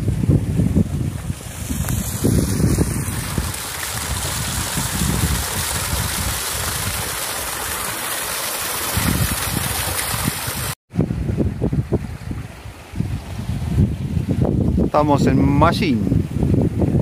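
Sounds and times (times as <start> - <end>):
wind on microphone: 0.0 - 7.9, 8.8 - 17.0
water splashing over rock: 0.8 - 10.8.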